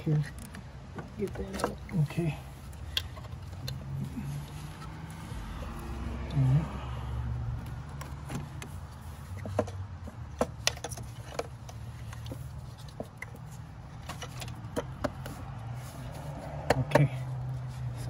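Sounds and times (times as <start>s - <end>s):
clicks and knocks of part seating: 7.6s - 13.4s, 14.0s - 15.4s, 16.6s - 17.2s.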